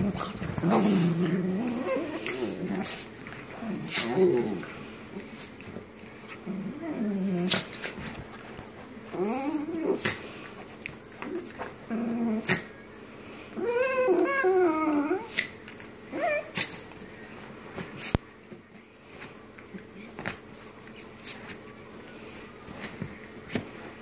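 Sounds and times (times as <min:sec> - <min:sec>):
dogs growling and whining: 0:00.0 - 0:08.4, 0:09.0 - 0:12.8, 0:13.5 - 0:17.0.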